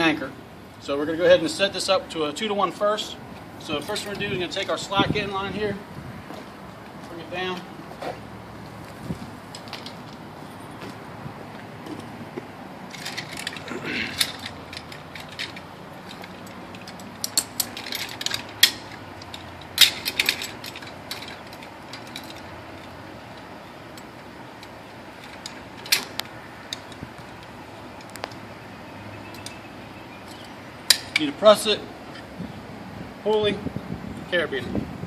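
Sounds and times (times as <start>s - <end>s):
carabiners clinking and clicking: 3.6s - 5.4s, 12.9s - 28.5s, 29.2s - 32.3s.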